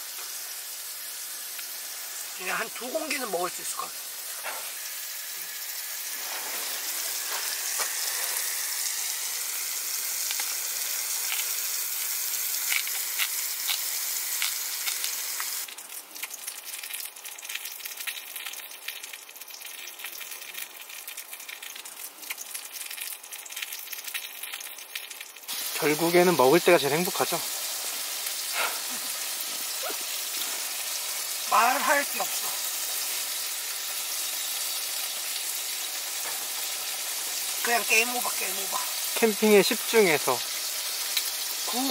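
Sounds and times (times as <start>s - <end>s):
pork sizzling in a pan: 0.0s - 41.9s
spitting crackles: 28.4s - 31.1s.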